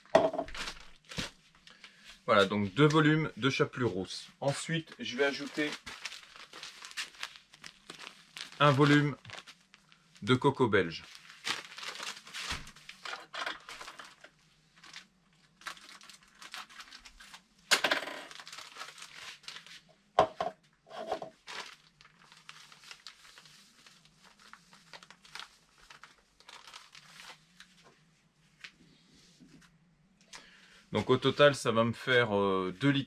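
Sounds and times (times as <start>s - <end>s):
plastic bag crinkling: 0.4s - 1.8s, 4.5s - 10.2s, 11.0s - 17.4s, 18.1s - 19.8s, 21.3s - 27.8s.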